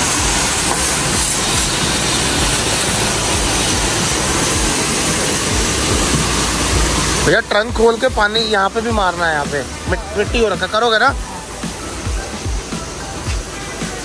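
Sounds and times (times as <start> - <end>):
pressure washer spraying water: 0.0 - 14.0.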